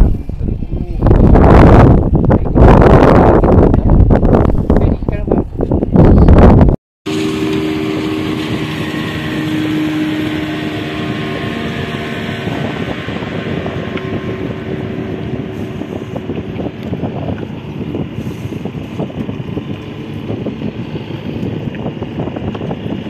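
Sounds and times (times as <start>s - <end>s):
wind and water noise: 0.0s - 23.0s
boat engine humming: 7.1s - 23.0s.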